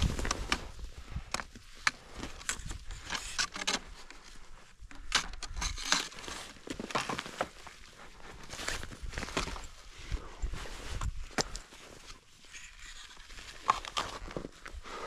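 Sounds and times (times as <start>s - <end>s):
footsteps crunching in crusted snow: 5.8s - 15.0s.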